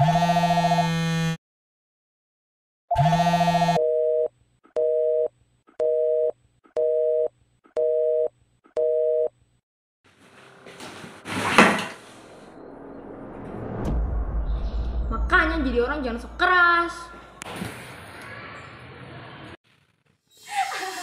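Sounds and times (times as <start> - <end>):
noisy whoosh: 10.1 - 17.4.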